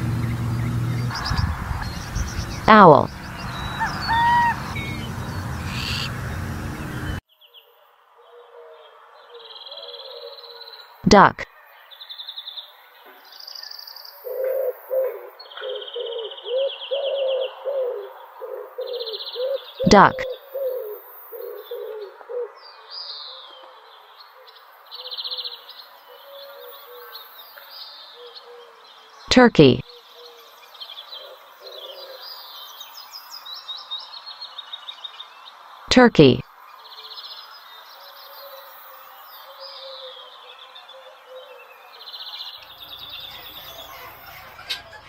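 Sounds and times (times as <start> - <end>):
birds calling: 0.0 - 7.2, 13.5 - 35.6, 37.2 - 45.0
buzzy bird trill: 0.0 - 7.2, 42.5 - 45.0.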